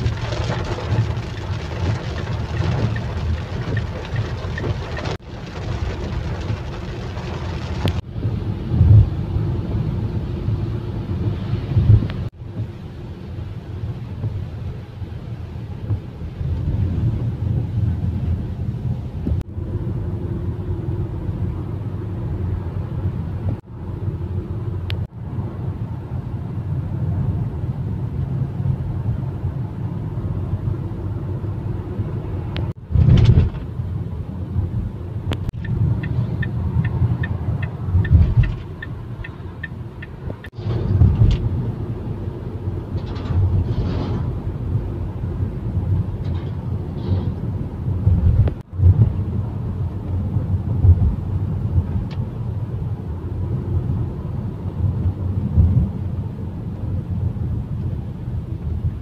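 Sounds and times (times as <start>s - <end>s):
rain and tyre spray hiss: 0.0s - 8.4s
car engine and tyre rumble: 0.0s - 59.0s.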